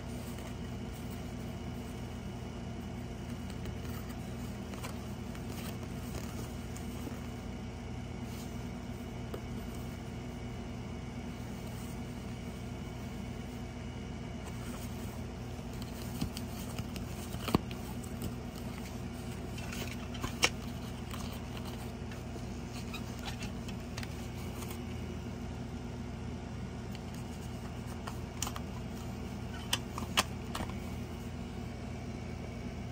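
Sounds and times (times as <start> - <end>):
plastic cassette case clicks: 29.6 - 30.8.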